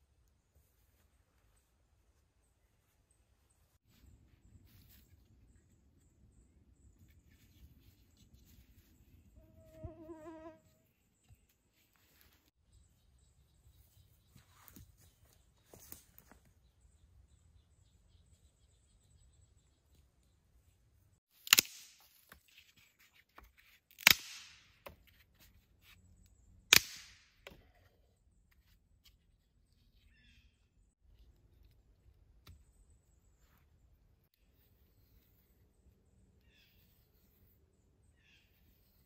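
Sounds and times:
dry sticks snapping: 21.4s - 22.3s, 23.9s - 24.6s, 26.7s - 27.2s.

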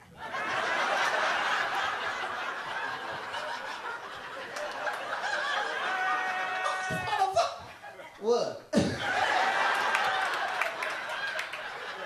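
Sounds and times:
audience laughing: 0.1s - 6.8s, 8.8s - 12.0s.

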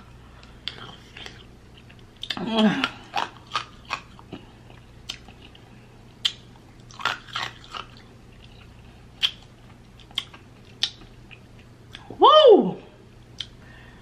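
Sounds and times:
faint steady hum: 0.0s - 14.0s
person eating mouth sounds: 0.6s - 4.4s.

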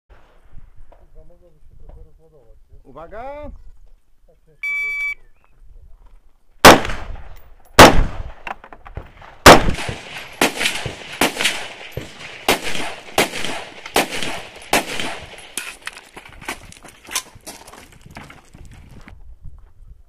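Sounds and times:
distant gunshots: 6.6s - 8.4s, 9.2s - 15.6s
loud gunshots: 6.6s - 8.4s, 9.4s - 15.6s.

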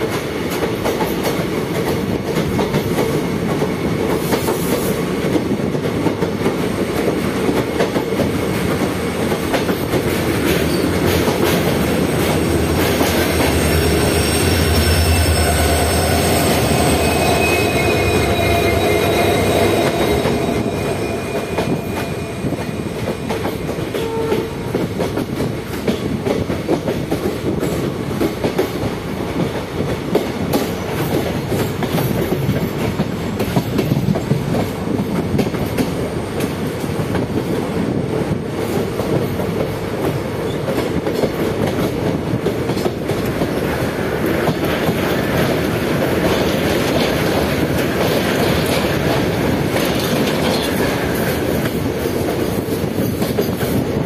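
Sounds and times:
train rumbling: 0.0s - 54.0s
high wheel squeal: 13.2s - 23.3s.

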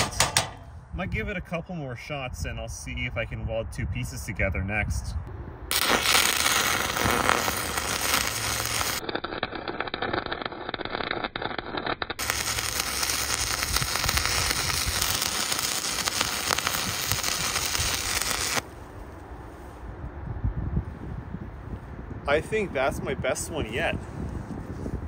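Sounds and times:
welding arc crackling: 0.0s - 0.7s, 5.7s - 18.6s.

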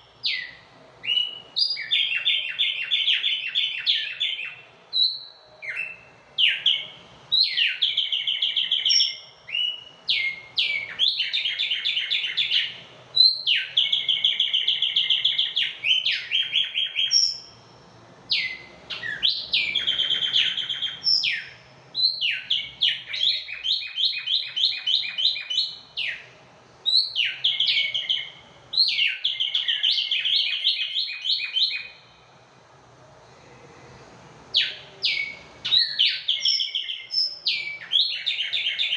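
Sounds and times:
songbirds trilling: 18.3s - 32.0s.

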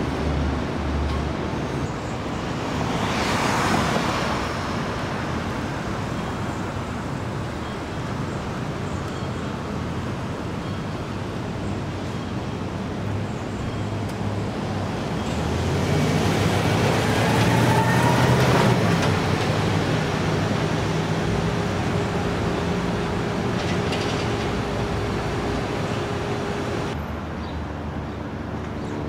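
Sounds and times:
traffic engine hum and road noise: 0.0s - 29.0s
motor vehicle passing: 15.4s - 27.0s.

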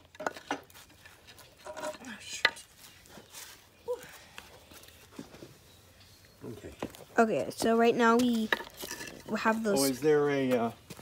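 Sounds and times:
boards and bricks knocking: 0.0s - 0.8s.

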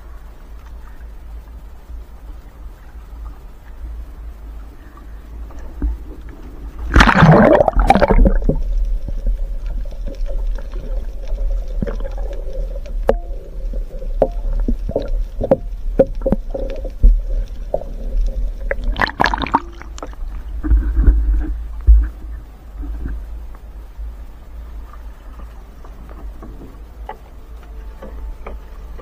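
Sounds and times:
muffled underwater rumble: 0.0s - 29.0s
water splashing: 4.3s - 23.2s.

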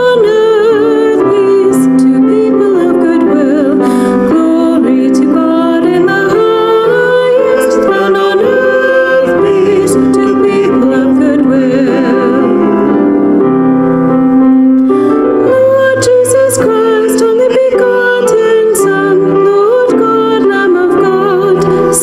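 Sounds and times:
keyboard accompaniment: 0.0s - 22.0s
person singing slow melody: 4.3s - 13.5s.

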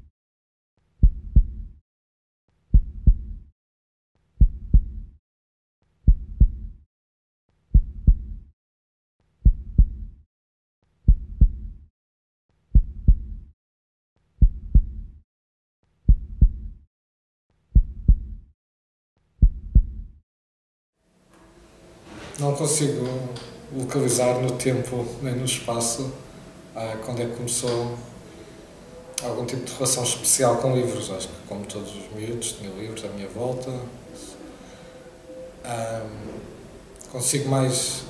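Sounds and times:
low double thumps: 1.0s - 1.7s, 2.7s - 3.4s, 4.4s - 5.1s, 7.7s - 8.4s, 9.4s - 10.2s, 11.1s - 11.8s, 12.7s - 13.5s, 14.4s - 15.2s, 16.1s - 16.8s, 17.8s - 18.4s, 19.4s - 20.2s.

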